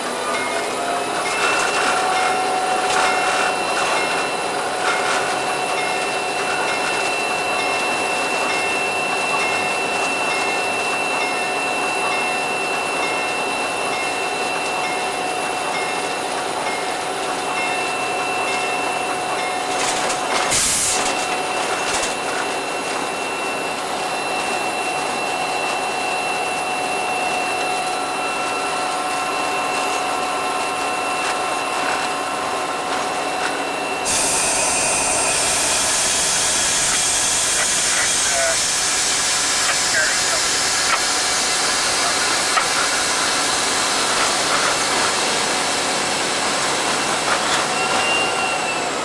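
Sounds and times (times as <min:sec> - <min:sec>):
locomotive cab noise: 0:00.0 - 0:49.0
faint steady whines: 0:00.3 - 0:49.0
brake air hiss: 0:20.5 - 0:21.2, 0:34.0 - 0:43.5.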